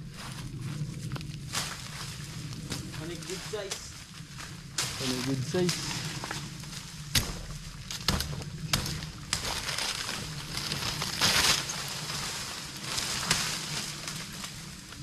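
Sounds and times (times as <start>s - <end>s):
rustling crash of leaves: 1.4s - 15.0s
machete chopping stalks: 7.1s - 10.1s.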